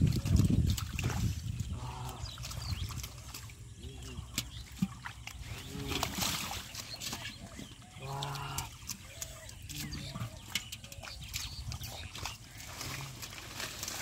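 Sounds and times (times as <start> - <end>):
muddy water splashing: 0.0 - 14.0
birds calling: 1.0 - 14.0
farm animals calling: 5.4 - 13.4.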